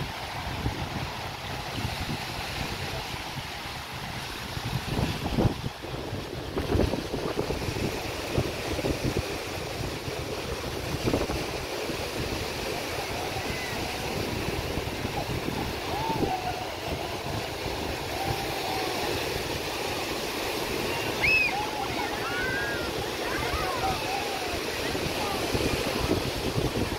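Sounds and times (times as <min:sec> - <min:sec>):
surf: 0:00.0 - 0:26.9
wind buffeting microphone: 0:00.0 - 0:26.9
distant voices calling: 0:15.1 - 0:26.0.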